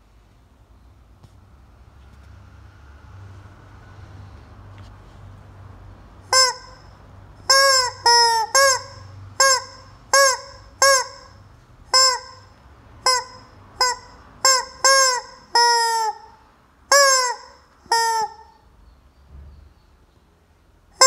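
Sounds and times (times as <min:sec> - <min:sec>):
rubber chicken toy squawking: 0:06.3 - 0:18.6.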